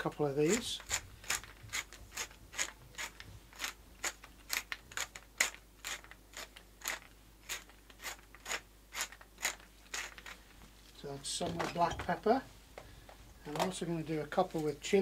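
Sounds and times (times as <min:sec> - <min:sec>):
pepper mill grinding: 0:00.4 - 0:10.4.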